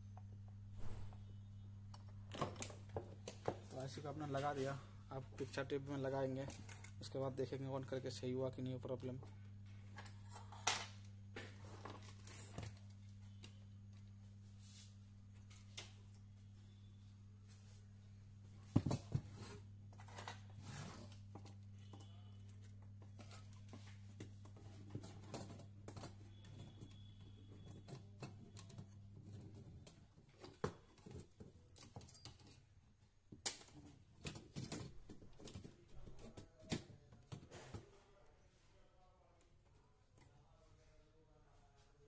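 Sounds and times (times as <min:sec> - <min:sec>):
monitor being handled: 0:18.7 - 0:32.6.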